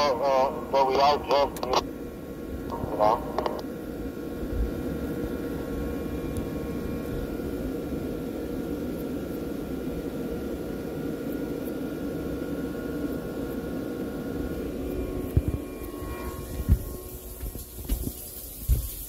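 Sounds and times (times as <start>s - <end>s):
faint whining tones: 0.0s - 19.0s
machinery hum and hiss: 0.0s - 19.0s.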